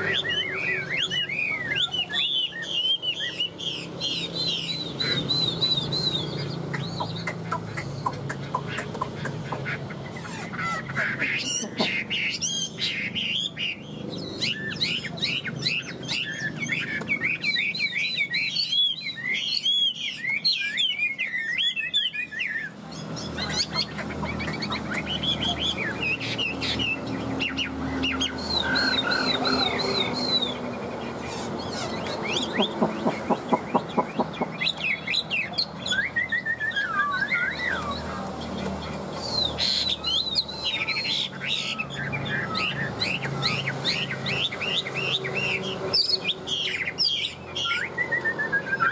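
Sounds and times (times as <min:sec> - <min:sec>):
bird singing whistled notes: 0:00.0 - 0:07.2, 0:12.3 - 0:23.9, 0:31.7 - 0:38.1, 0:39.2 - 0:48.9.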